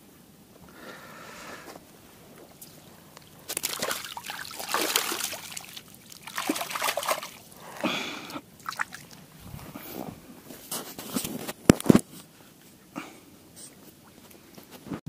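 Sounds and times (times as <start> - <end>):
water splashing and sloshing: 2.4 - 10.2.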